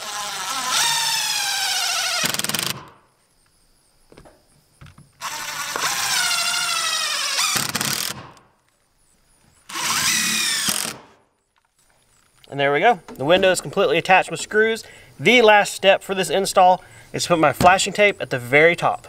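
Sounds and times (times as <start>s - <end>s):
impact driver whining: 0.0s - 3.0s, 5.2s - 8.4s, 9.7s - 11.2s.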